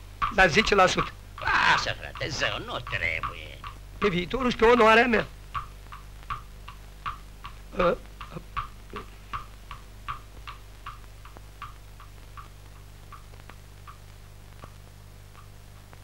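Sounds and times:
steady low hum: 0:00.0 - 0:16.0
horse hooves clip-clopping: 0:08.2 - 0:14.0.

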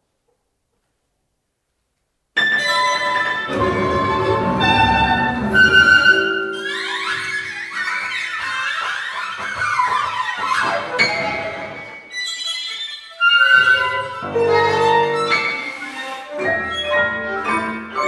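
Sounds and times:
chamber ensemble playing: 0:02.6 - 0:08.2.

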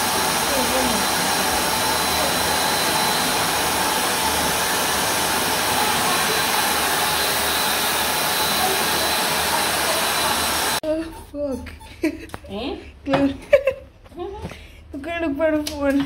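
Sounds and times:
pet dryer blowing air: 0:00.0 - 0:10.8.

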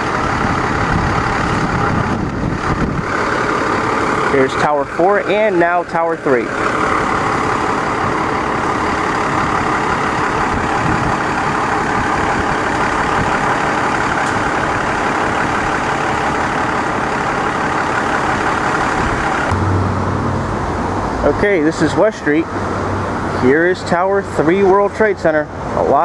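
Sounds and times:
heavy street traffic: 0:00.0 - 0:26.0
truck engines running: 0:00.0 - 0:26.0.

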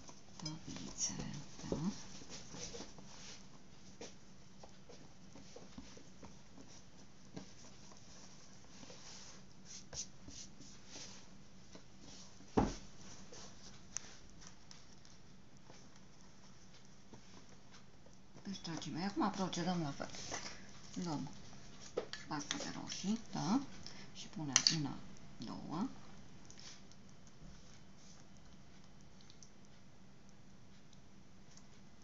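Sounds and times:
low steady hum: 0:00.0 - 0:32.0
hands patting dough: 0:00.7 - 0:20.6.

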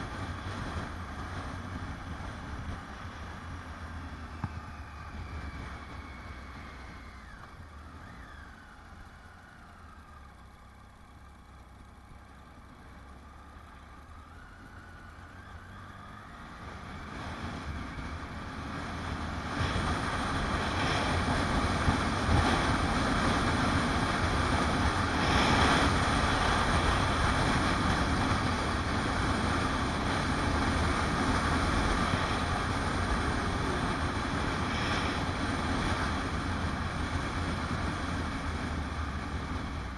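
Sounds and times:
wind rushing over microphone: 0:00.0 - 0:07.9, 0:16.2 - 0:39.9
motorcycle engine running: 0:00.0 - 0:39.9.

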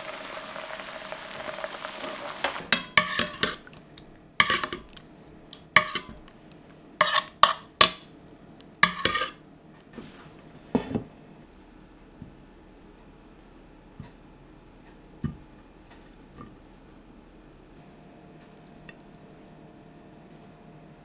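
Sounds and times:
metal spoon scraping a pan: 0:02.7 - 0:03.7, 0:04.4 - 0:05.0, 0:05.8 - 0:06.2, 0:07.0 - 0:08.0, 0:08.8 - 0:09.4
ceramic plate set on wooden table: 0:10.7 - 0:11.1.

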